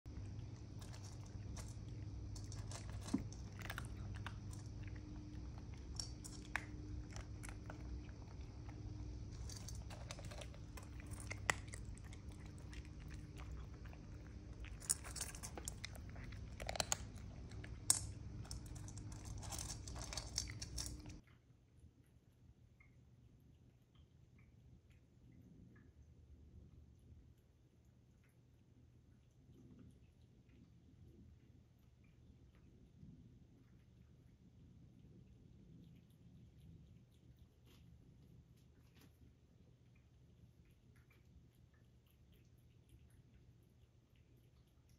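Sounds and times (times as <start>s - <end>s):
cats crunching dry kibble: 0.1s - 21.2s
low hum: 0.1s - 21.2s.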